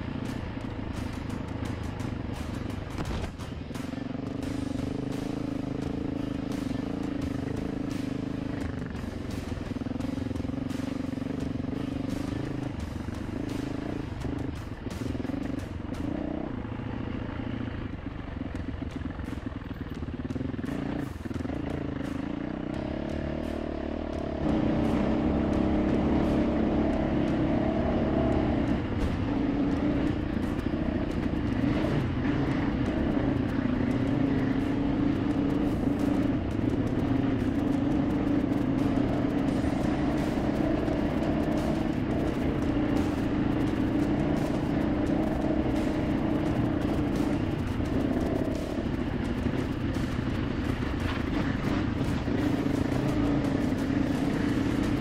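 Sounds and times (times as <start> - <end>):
dirt bike engine running: 0.0 - 55.0
knocks and rattles over terrain: 0.0 - 55.0.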